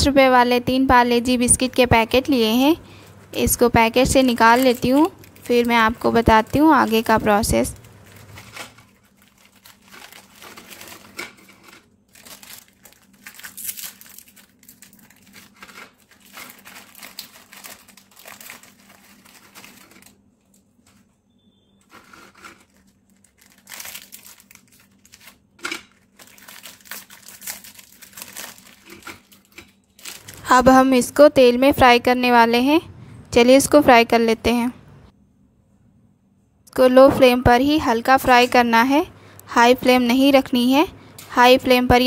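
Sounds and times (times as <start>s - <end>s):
plastic wrappers crinkling and tearing: 3.0s - 21.1s, 21.8s - 30.8s.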